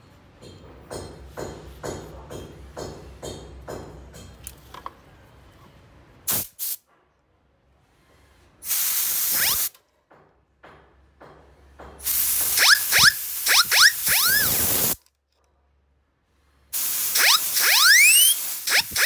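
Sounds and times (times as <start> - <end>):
steam siren puffs and blast: 12.4 - 15.0, 16.8 - 19.0.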